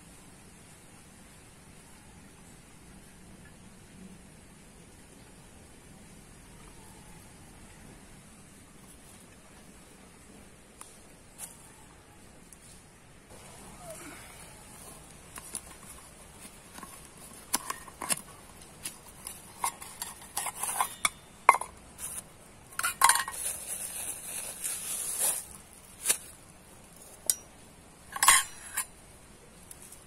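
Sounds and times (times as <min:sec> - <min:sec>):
metal cookware clinking: 0:19.0 - 0:22.2, 0:22.8 - 0:23.7, 0:27.2 - 0:27.5, 0:28.1 - 0:28.9
sack and plastic bag rustling: 0:23.4 - 0:26.4.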